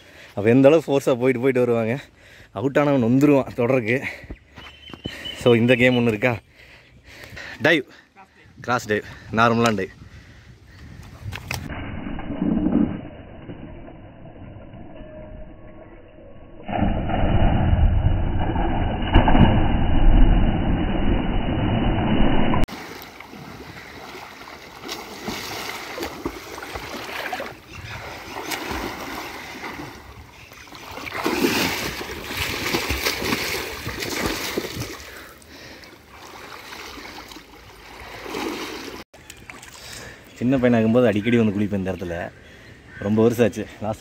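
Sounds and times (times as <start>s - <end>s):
man diving into water: 16.6s - 39.0s
swimmer's arm strokes splashing: 22.7s - 35.1s.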